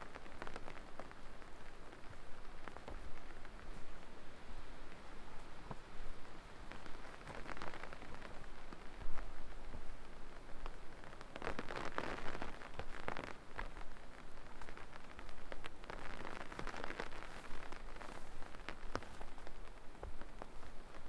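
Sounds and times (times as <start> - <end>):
rain dripping: 0.0 - 21.0.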